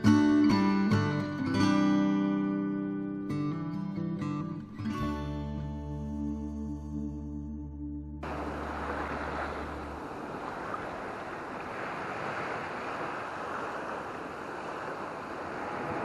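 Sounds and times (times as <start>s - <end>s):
waves washing onto beach: 8.2s - 16.0s.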